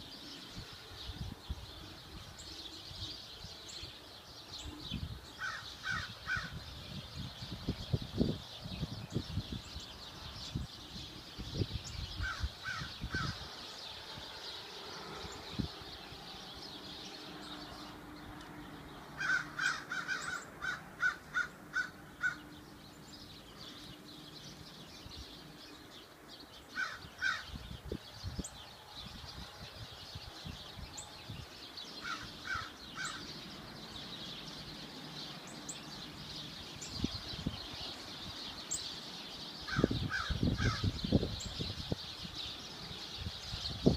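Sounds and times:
steady background noise: 9.7 - 43.9
bird calling: 19.2 - 24.0, 31.9 - 37.0.

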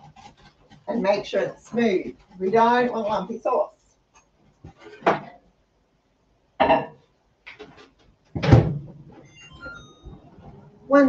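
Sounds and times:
short electronic beeps: 9.2 - 10.4.

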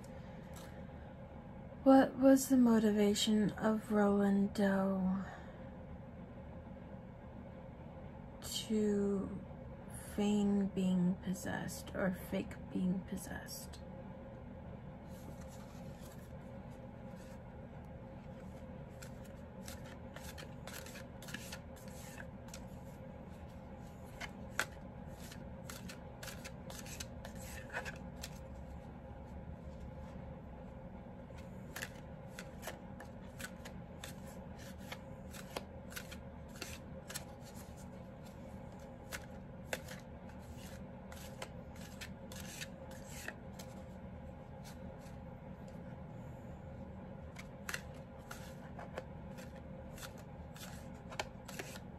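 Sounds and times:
low hum: 12.0 - 51.3
cards being shuffled: 15.1 - 17.5, 18.1 - 28.9, 31.3 - 45.8, 47.3 - 51.9.

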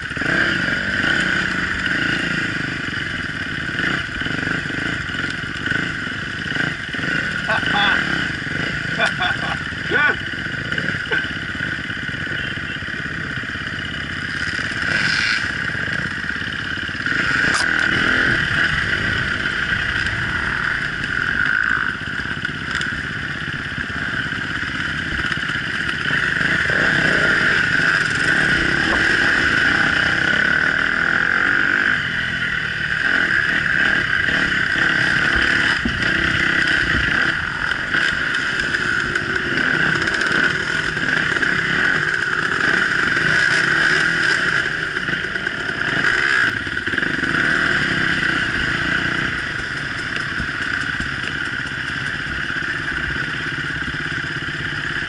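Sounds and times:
off-road motorcycle engine: 0.0 - 55.0
motorcycle clattering over bumps: 13.4 - 31.2, 33.1 - 54.9.

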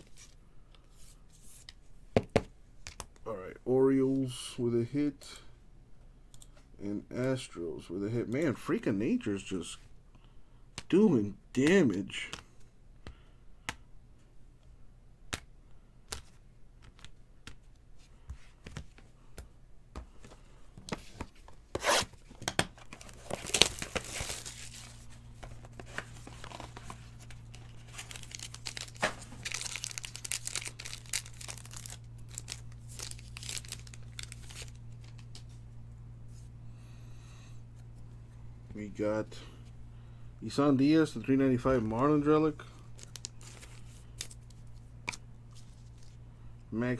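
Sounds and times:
faint low hum: 0.0 - 46.9
light clicks and taps of cards: 16.1 - 21.0
cards scraping and sliding: 20.2 - 29.7
cardboard tearing: 22.9 - 25.0, 27.6 - 34.7.

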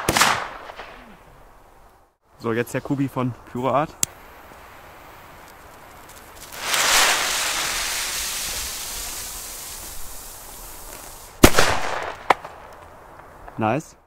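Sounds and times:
firecracker bang: 0.0 - 1.1, 6.4 - 12.7
fuse hissing: 4.0 - 11.4.

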